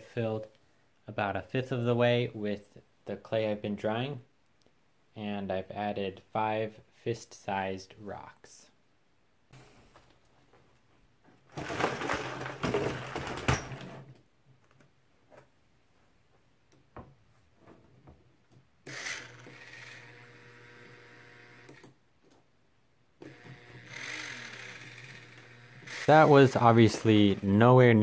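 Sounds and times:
rocks rattling in plastic bucket: 11.5s - 14.1s
electric motors whirring: 18.9s - 21.9s, 23.2s - 27.6s.

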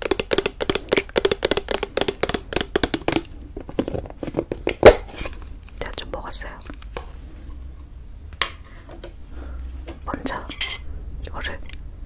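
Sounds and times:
fingernails tapping on plastic tub: 0.0s - 3.3s
knock on plastic tub: 0.0s - 3.8s.

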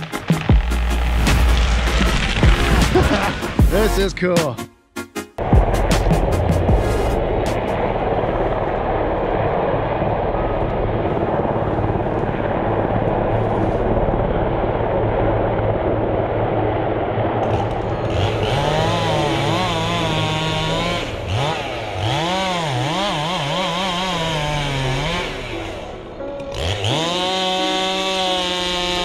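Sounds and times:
steady rushing noise: 5.4s - 22.0s
low hum: 5.4s - 29.0s
chainsaw engine revving: 17.4s - 29.0s.

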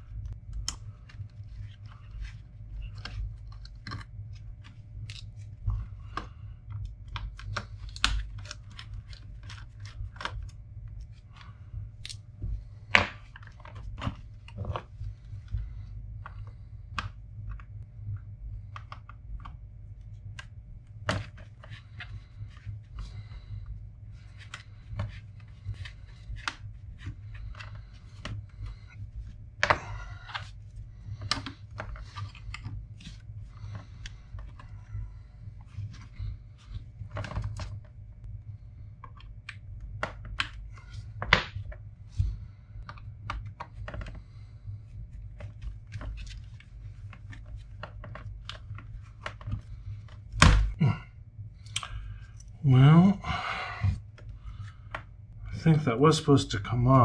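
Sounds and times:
low hum: 0.0s - 57.0s
small clicks taps and scrapes: 0.2s - 12.2s, 39.0s - 44.5s.

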